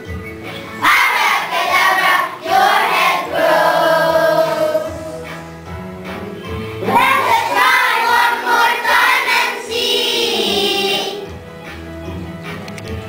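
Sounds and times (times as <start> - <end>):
young children singing: 0.8 - 5.4, 6.8 - 11.3.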